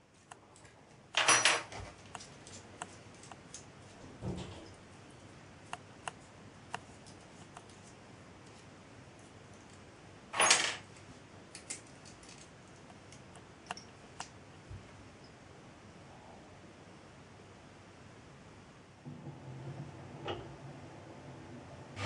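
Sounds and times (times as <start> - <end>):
small metal parts clinking: 11.5 - 12.5.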